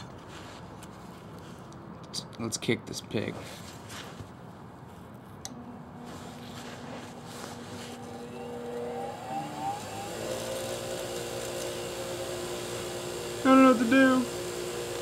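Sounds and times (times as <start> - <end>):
bench grinder motor whining: 8.0 - 15.0.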